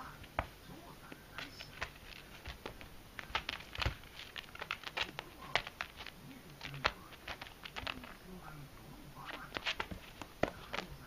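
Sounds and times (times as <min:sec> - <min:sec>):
kitten claws scratching on mat: 0:01.4 - 0:08.3, 0:09.2 - 0:11.0.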